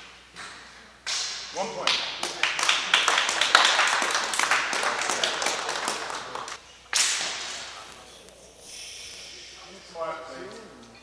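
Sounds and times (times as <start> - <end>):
people clapping: 1.1 - 7.9.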